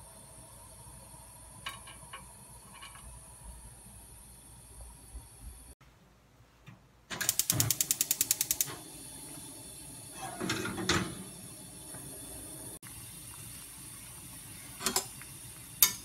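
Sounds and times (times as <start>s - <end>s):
gas stove igniter clicking: 7.1s - 9.0s
gas flame hissing: 7.1s - 16.0s.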